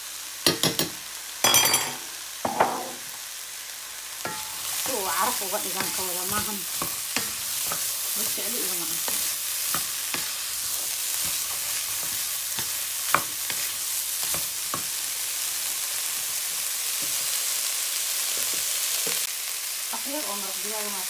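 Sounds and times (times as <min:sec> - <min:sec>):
meat and peppers sizzling in a pan: 0:00.0 - 0:21.0
spatula tapping and scraping pan: 0:04.2 - 0:15.0.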